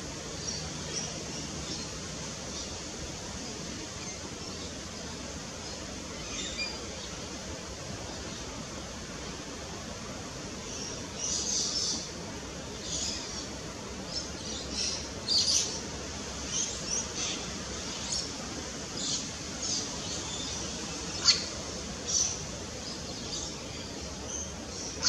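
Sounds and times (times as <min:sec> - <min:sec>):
small birds chirping: 0:10.5 - 0:25.0.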